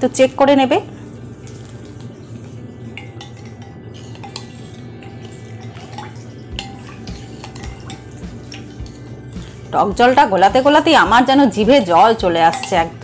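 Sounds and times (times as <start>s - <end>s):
liquid swirling: 0.9s - 13.0s
spoon clinking glass bowl: 2.9s - 9.6s, 11.6s - 13.0s.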